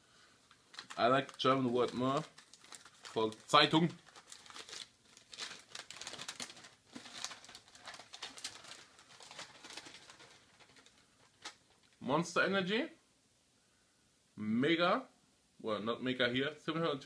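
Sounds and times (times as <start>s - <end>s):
newspaper crinkling and rustling: 0.5s - 12.0s.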